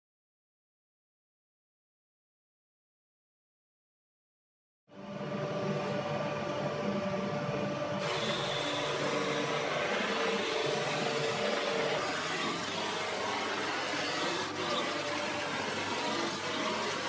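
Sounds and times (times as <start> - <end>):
drum sander motor hum: 8.0 - 17.0
wood sanding noise: 8.0 - 17.0.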